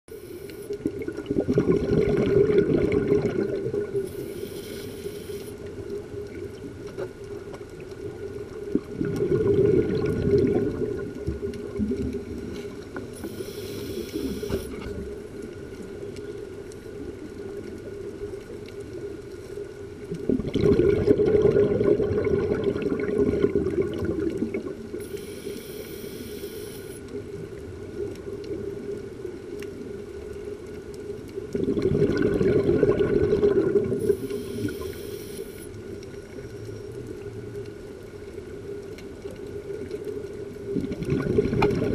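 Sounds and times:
regulator hiss on inhale: 0.1 - 0.7, 4.0 - 5.6, 12.5 - 14.8, 25.0 - 27.1, 34.0 - 35.8
exhaled bubbles rushing underwater: 0.5 - 41.9.

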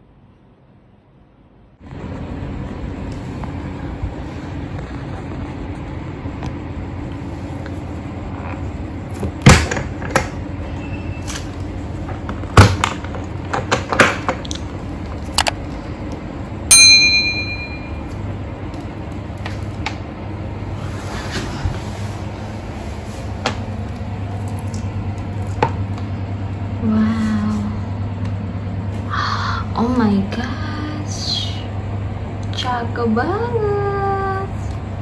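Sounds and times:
steady low hum: 0.0 - 35.0
short metallic ring: 16.7 - 18.0.

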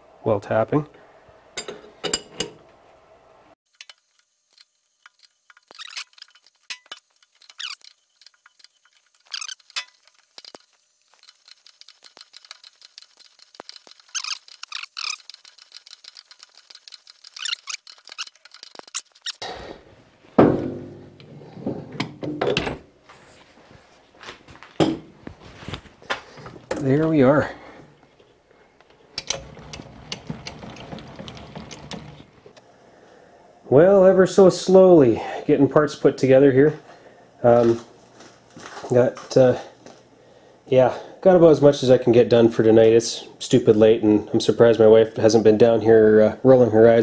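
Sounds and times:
threading tap squeaking and clicking: 3.7 - 10.6, 11.2 - 19.4, 28.8 - 32.3.

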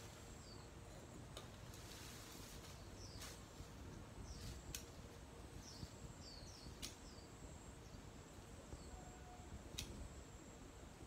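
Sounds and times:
blade cutting stems clicks: 4.7 - 4.9, 6.7 - 7.1, 9.7 - 10.1
bird chirps: 5.6 - 8.1.

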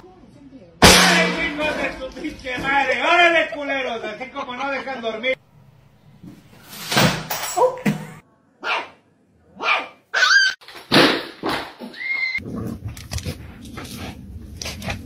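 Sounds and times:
dogs barking: 8.6 - 10.5.

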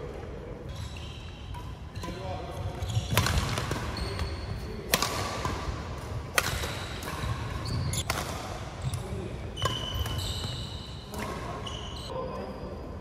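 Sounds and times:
shoes squeaking on court floor: 0.6 - 4.8, 6.5 - 8.2, 8.8 - 12.9
rackets striking shuttlecock: 1.5 - 11.5.

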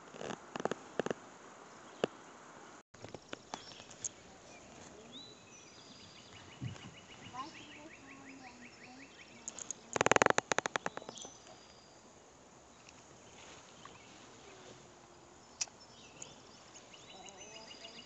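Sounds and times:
faint click: 15.6 - 16.4.

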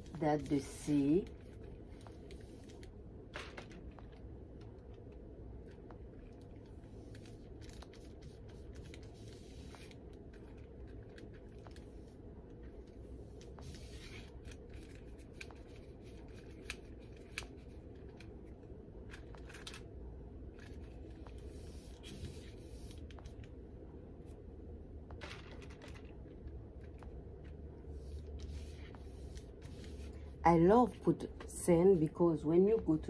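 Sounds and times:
low steady hum: 0.0 - 33.0
paintbrush scratchy strokes: 21.3 - 23.3, 27.8 - 30.4.

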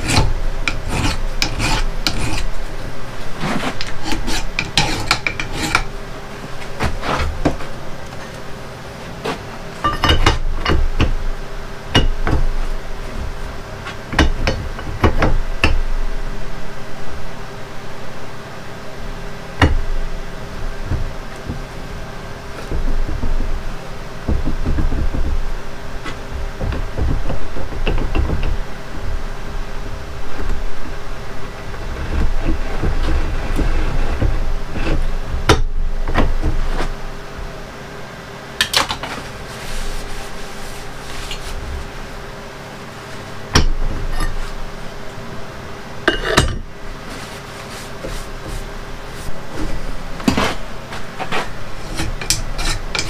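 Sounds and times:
steel parts clunking and scraping: 0.0 - 2.6, 3.4 - 6.0, 9.2 - 11.2, 43.2 - 44.7, 46.1 - 53.0.

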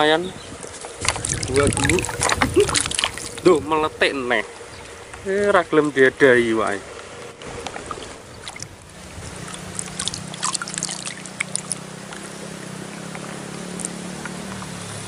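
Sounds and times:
low engine hum: 0.0 - 5.9, 6.8 - 15.0
water splashes and drips: 0.6 - 3.6, 7.4 - 15.0.

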